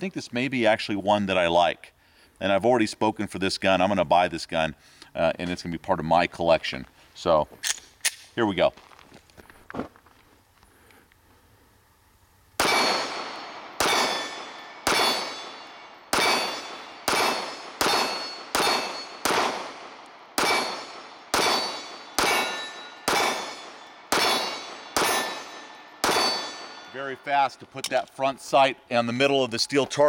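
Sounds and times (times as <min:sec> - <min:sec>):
bullets clanging on steel target: 0:12.6 - 0:19.8, 0:20.4 - 0:28.2
pistol shots: 0:12.6 - 0:27.1.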